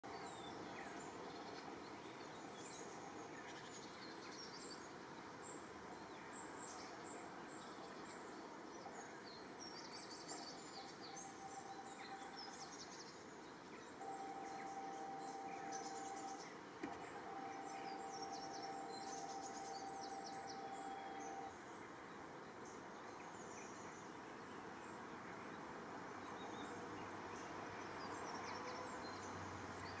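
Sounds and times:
songbirds chirping: 0:00.0 - 0:30.0
faint outdoor hiss: 0:00.1 - 0:30.0
steady even tone: 0:10.7 - 0:12.4, 0:14.0 - 0:21.5.

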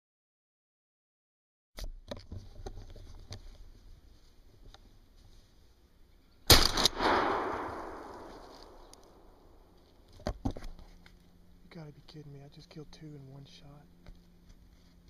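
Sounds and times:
faint clicks and rustles: 0:02.0 - 0:05.8, 0:08.2 - 0:12.2
gunshot with echo: 0:06.5 - 0:09.0.

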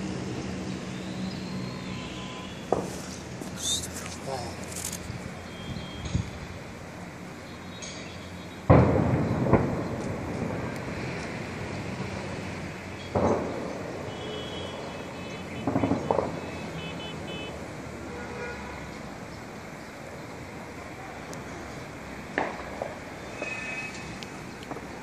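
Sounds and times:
outdoor city noise: 0:00.0 - 0:25.0
wind: 0:00.0 - 0:25.0
short sharp bangs: 0:15.6 - 0:16.9.

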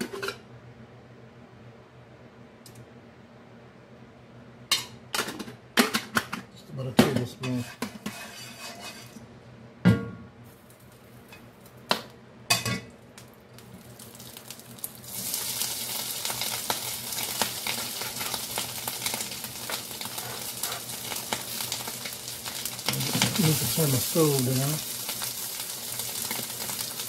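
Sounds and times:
steak sizzling in a skillet: 0:13.6 - 0:27.0.

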